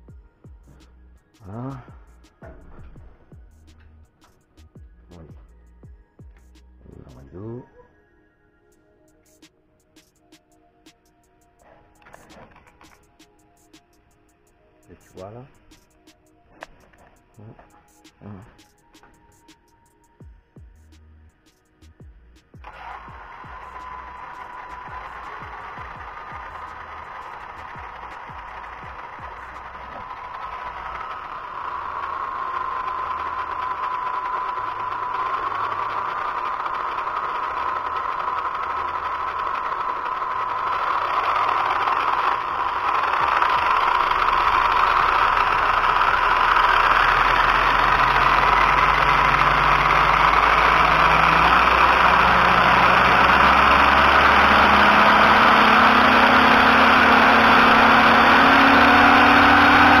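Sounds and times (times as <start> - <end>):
electric motor whine: 22.5 - 60.0.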